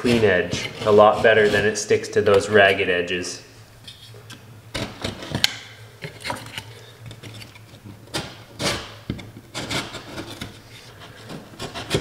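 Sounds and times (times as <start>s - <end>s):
knife scraping drywall: 0.0s - 2.8s, 6.2s - 12.0s.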